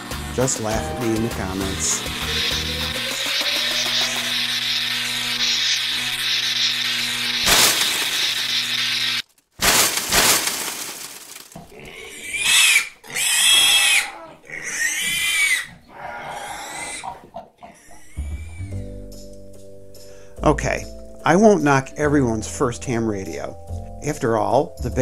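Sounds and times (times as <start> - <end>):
high-pitched squeals: 0.0 - 9.2
buzzing electrical hum with crackling: 0.0 - 12.4
burst of noise: 2.3 - 11.6
crash: 7.4 - 8.5, 9.6 - 11.6.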